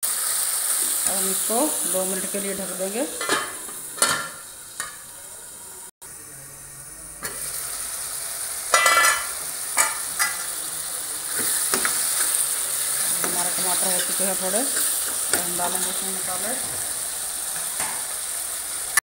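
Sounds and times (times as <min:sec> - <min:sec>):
masala sizzling in a pan: 0:00.0 - 0:19.0
metal lid clinking: 0:03.2 - 0:05.0, 0:08.7 - 0:10.4
spatula stirring in a pan: 0:11.2 - 0:18.1.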